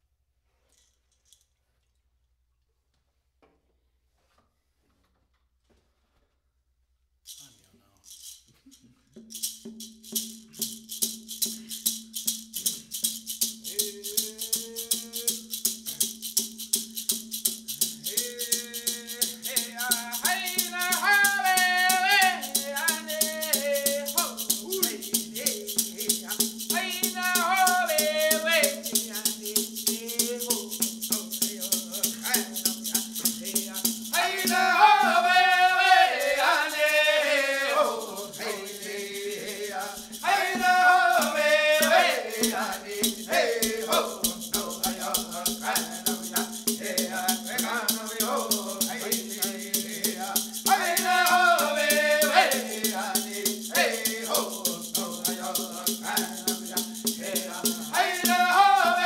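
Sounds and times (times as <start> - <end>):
rattle shaken in a beat: 0.6 - 1.6, 7.2 - 59.0
women singing: 18.7 - 59.0.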